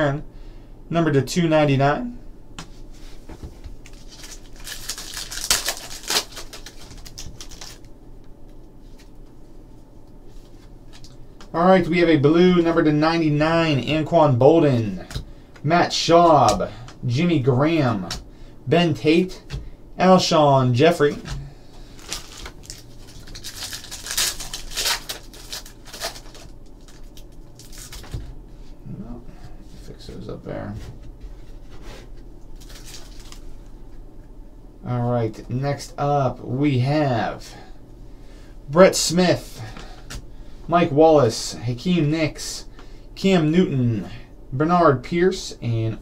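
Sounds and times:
cards rustling: 3.8 - 7.9, 21.9 - 28.3, 32.6 - 33.6
foil wrapper crinkling and tearing: 3.8 - 7.9, 21.9 - 28.3, 32.6 - 33.6.

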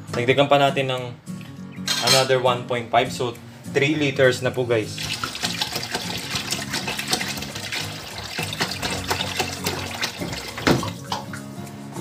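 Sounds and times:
water pouring into liquid: 5.0 - 11.3
knock on metal pot: 10.2 - 11.3.

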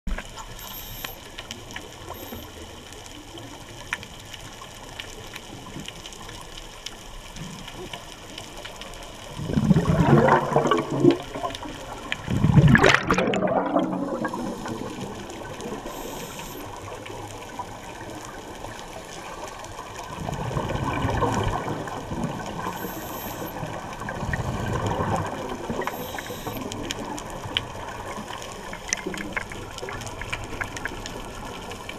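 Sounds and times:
faint crackling: 0.1 - 31.9
underwater hiss: 0.4 - 1.4, 13.5 - 17.2, 20.2 - 27.2
bubbles rushing and gurgling: 8.6 - 31.9.

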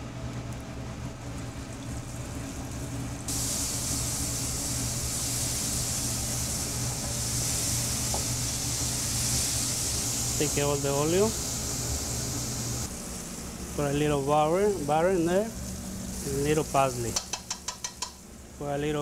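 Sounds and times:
cutlets sizzling in oil: 3.3 - 12.9.

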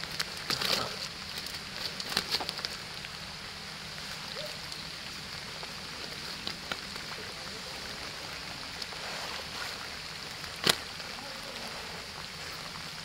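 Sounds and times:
net mesh clicking and rustling: 0.0 - 2.8, 10.4 - 10.9
steady outdoor hiss: 0.0 - 13.0.

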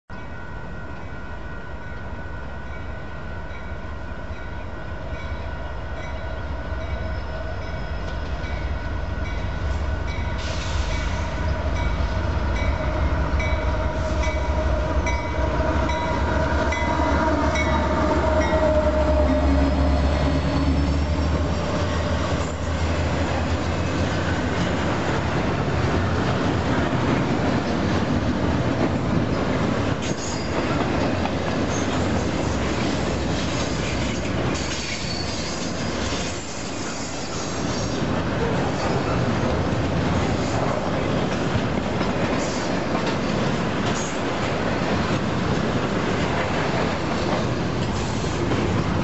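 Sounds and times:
train rail and wheel noise: 0.1 - 49.0
diesel locomotive rumble: 3.8 - 36.3.

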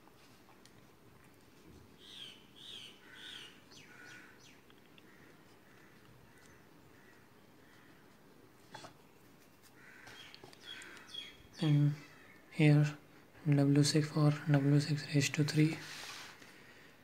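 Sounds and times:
faint bird chirps: 9.8 - 12.5.

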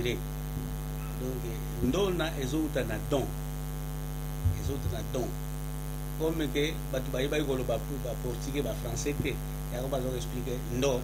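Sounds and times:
electrical mains hum: 0.0 - 11.0
short low thump: 4.4 - 5.1
man's voice: 4.5 - 5.4.

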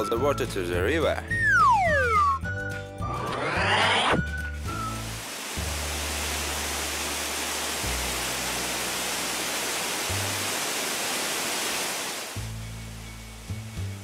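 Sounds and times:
background music with low bass: 0.0 - 6.8, 12.4 - 14.0
water gushing from a hose: 4.6 - 13.9.

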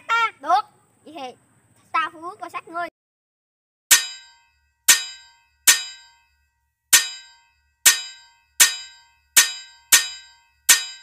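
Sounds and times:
sword clashing metallic clangs: 3.9 - 6.2, 6.9 - 11.0.

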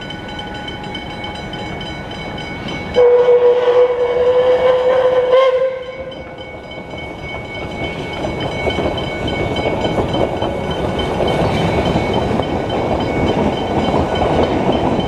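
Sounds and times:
level crossing bells ringing: 0.0 - 3.2, 5.9 - 15.0
train rumble: 0.0 - 15.0
steam whistle blast: 3.0 - 6.1.

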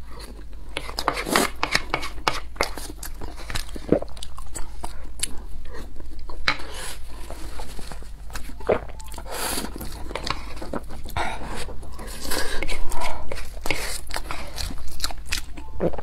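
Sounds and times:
wooden spoon scraping a pan: 0.8 - 2.8
chewing and mouth smacks: 12.6 - 16.0.

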